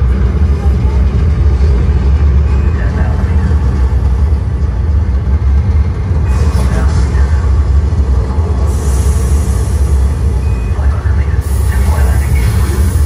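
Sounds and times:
deep rumble from loudspeakers: 0.0 - 13.0
hiss: 8.6 - 10.3, 11.4 - 13.0.

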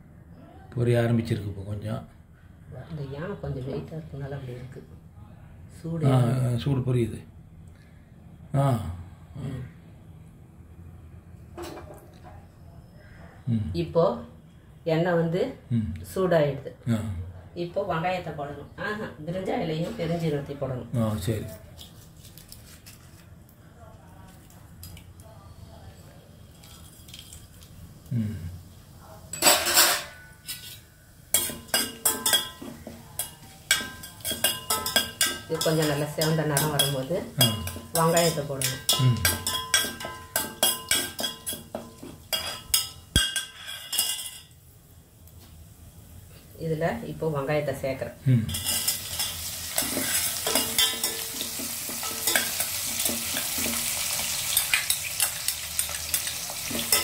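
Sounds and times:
metal spoon scraping a pot: 29.4 - 44.5, 48.5 - 53.8
onions sizzling in oil: 30.4 - 47.3, 48.3 - 57.0.

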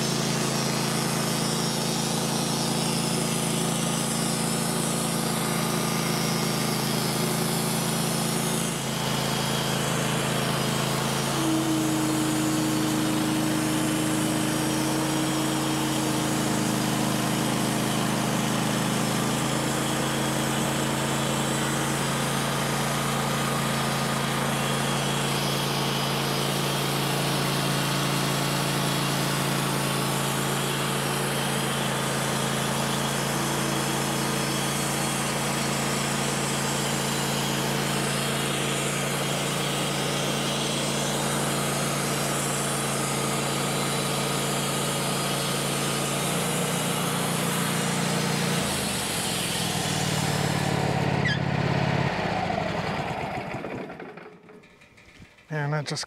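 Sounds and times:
sawmill engine running under load: 0.0 - 56.0
band blade cutting log: 0.1 - 20.8.

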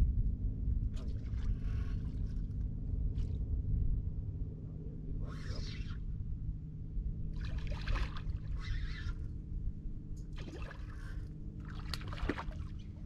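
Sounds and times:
steady low hum: 0.0 - 13.0
water splashing and sloshing: 0.9 - 3.4, 7.3 - 9.2, 10.3 - 13.0.

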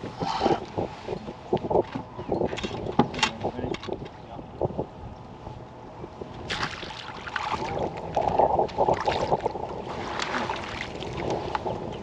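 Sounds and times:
water sloshing: 6.4 - 12.0.

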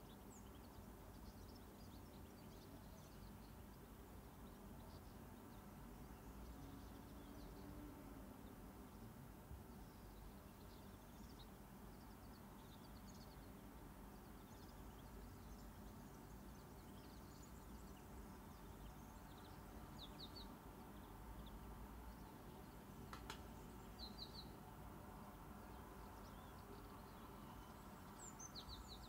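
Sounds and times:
bird chirps: 9.8 - 24.6, 25.7 - 29.0.

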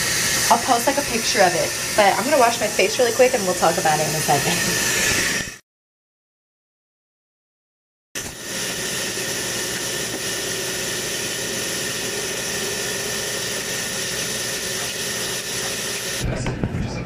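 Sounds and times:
face being washed: 0.0 - 5.6, 8.3 - 16.2.

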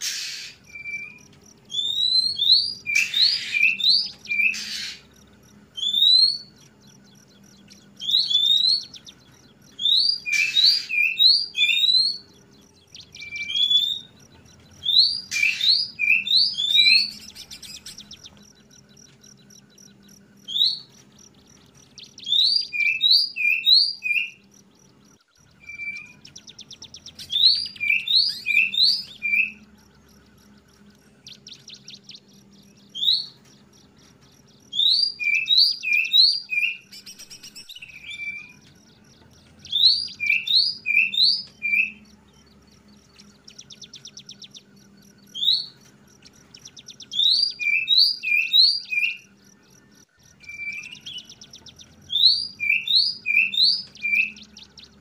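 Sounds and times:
bird whistled calls: 0.0 - 5.1, 5.7 - 6.6, 7.3 - 14.2, 14.8 - 18.4, 21.9 - 24.4, 25.4 - 29.7, 30.9 - 33.4, 34.7 - 38.8, 39.6 - 42.2, 45.3 - 49.3, 50.3 - 55.0
harsh rasping bird calls: 0.0 - 55.0.

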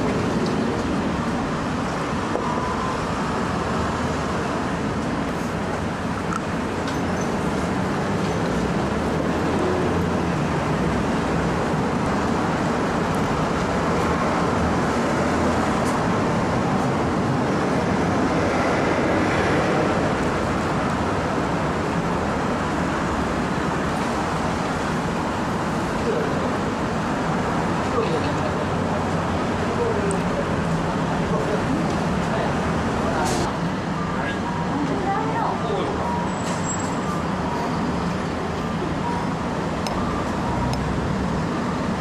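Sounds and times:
street traffic noise: 0.0 - 42.0.

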